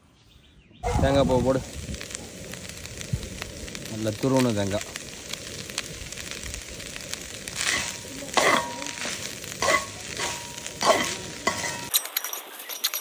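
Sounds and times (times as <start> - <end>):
faint steady sizzle: 0.6 - 13.0
ladle scraping pan: 7.6 - 11.9.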